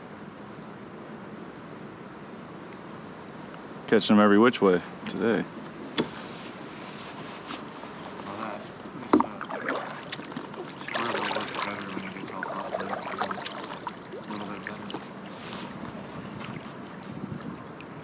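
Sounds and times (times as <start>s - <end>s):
paddle splashing in water: 8.3s - 18.0s.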